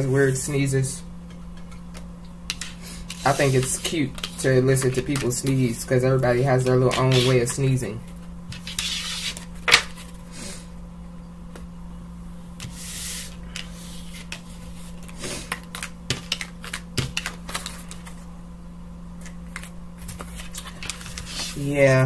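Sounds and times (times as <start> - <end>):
steady low hum: 0.0 - 22.0
cards sliding swish: 8.6 - 9.4
cards clicking and tapping: 15.4 - 18.2.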